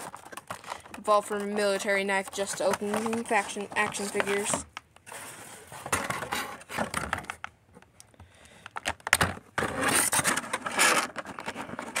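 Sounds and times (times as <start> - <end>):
plastic packaging crinkling: 0.0 - 4.6
plastic scraping cardboard: 0.0 - 7.4, 8.8 - 12.0.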